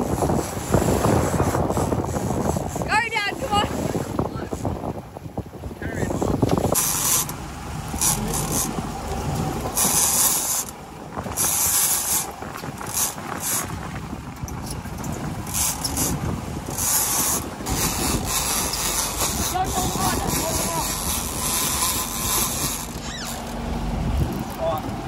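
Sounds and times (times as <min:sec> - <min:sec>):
low rumble of boat and sea: 0:00.0 - 0:25.0
fishing reel drag buzzing: 0:06.7 - 0:07.4, 0:08.0 - 0:08.8, 0:09.8 - 0:13.7, 0:15.5 - 0:23.6.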